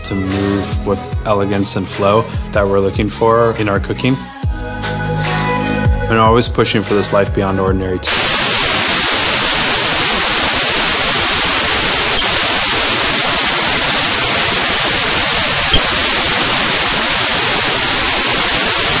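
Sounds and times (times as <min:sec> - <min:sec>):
white noise hiss: 0:08.1 - 0:19.0.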